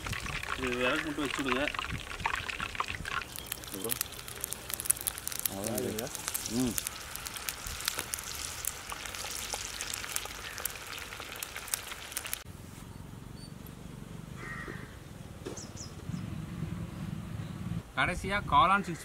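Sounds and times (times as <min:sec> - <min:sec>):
deep-frying sizzle with pops: 0:00.0 - 0:12.5
outdoor ambience: 0:00.0 - 0:19.0
bird calls: 0:09.6 - 0:11.1, 0:14.4 - 0:17.7.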